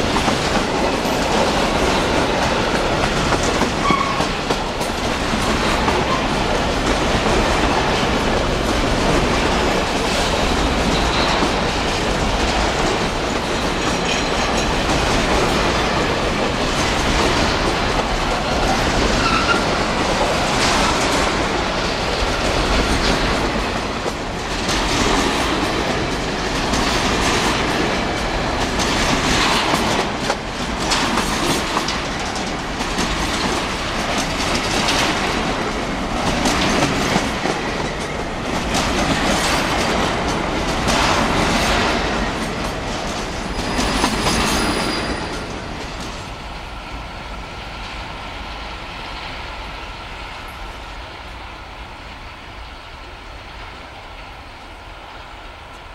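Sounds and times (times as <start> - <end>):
train wheels clattering over rail joints: 0.0 - 46.5
train rumble: 0.0 - 55.9.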